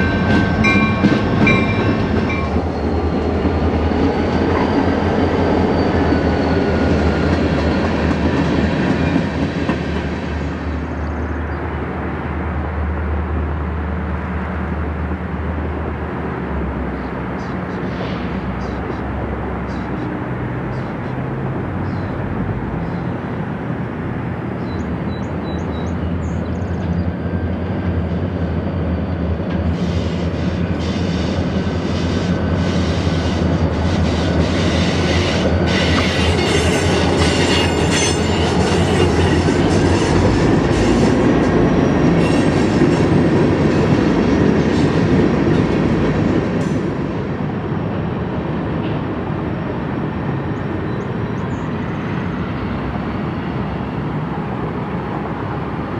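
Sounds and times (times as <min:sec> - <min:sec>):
train wheels clattering on rails: 0:00.0 - 0:10.8, 0:24.6 - 0:51.7
diesel locomotive engines: 0:00.0 - 0:55.9.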